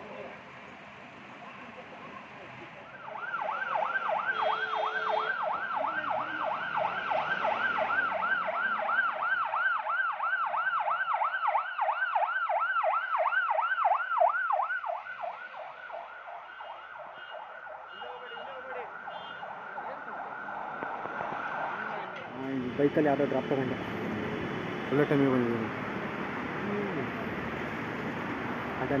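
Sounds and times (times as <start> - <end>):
ambulance siren yelping: 2.8 - 22.2.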